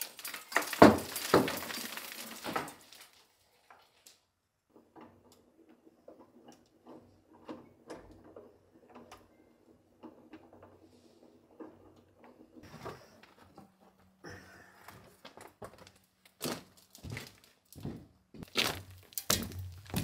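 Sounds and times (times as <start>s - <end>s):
stone blocks knocking and scraping: 0.0s - 3.2s.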